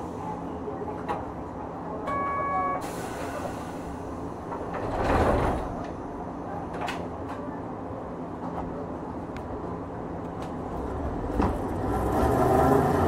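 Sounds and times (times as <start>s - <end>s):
tram rushing noise: 2.8s - 13.0s.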